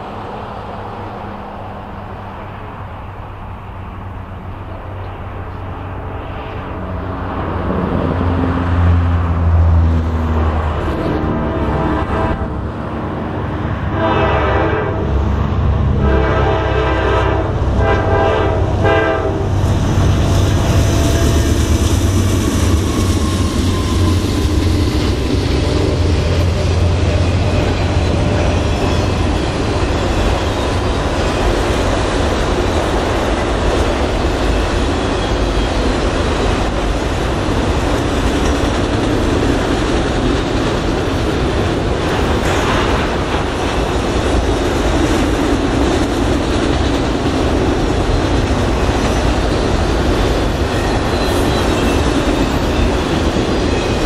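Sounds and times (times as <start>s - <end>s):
diesel locomotive engine rumble: 0.0s - 54.0s
rail cars rolling clatter: 0.0s - 54.0s
train horn blasts: 11.0s - 12.7s, 13.8s - 19.6s.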